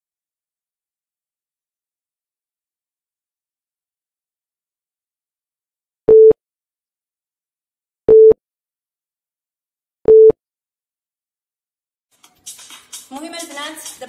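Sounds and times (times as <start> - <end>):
timer short beeps: 10.1 - 10.4.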